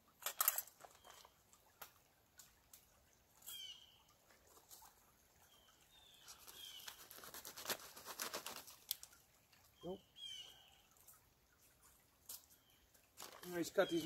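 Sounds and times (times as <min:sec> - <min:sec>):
plastic pouch crinkling: 0:06.4 - 0:09.1, 0:13.2 - 0:13.5.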